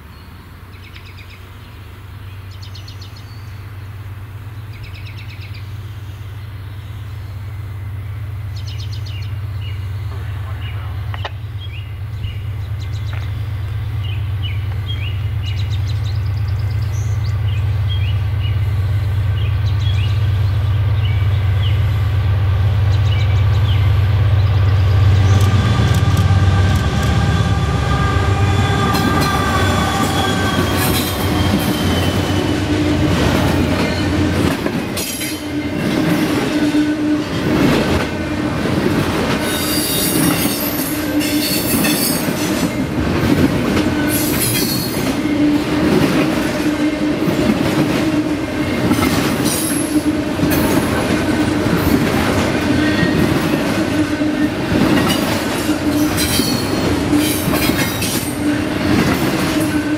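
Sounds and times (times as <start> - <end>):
diesel locomotive engine rumble: 0.0 - 59.9
high-pitched wheel squeal: 25.9 - 32.6
train wheels clacking over rail joints: 28.7 - 54.0, 54.6 - 59.9.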